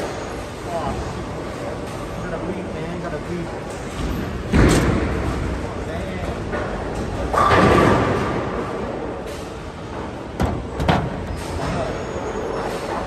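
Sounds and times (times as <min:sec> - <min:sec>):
sharp knocks: 0:10.4 - 0:11.2.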